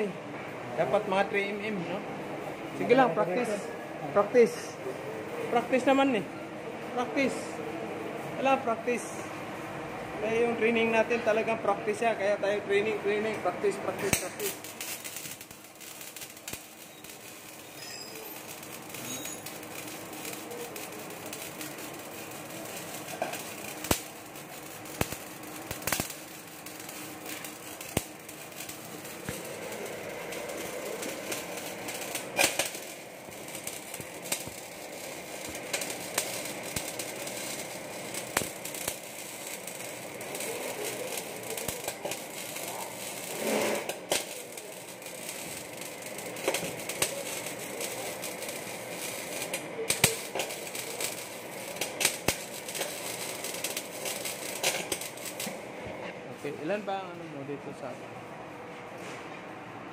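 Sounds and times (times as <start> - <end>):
welding arc crackling: 0.8 - 6.3, 6.9 - 57.2
sharp pops: 24.9 - 29.6, 30.3 - 34.8.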